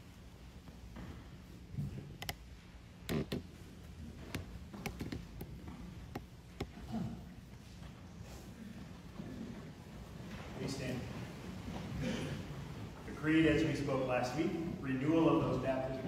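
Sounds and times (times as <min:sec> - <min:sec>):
low hum of room tone: 0:00.0 - 0:16.0
light taps and clicks: 0:04.2 - 0:06.8.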